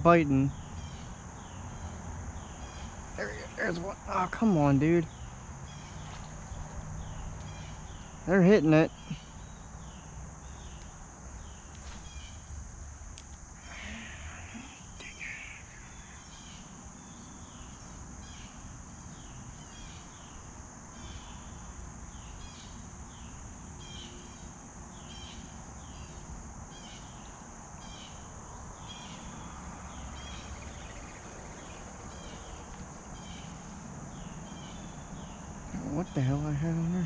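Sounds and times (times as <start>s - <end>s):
high insect buzz: 0.0s - 37.0s
short falling chirps: 11.8s - 12.6s.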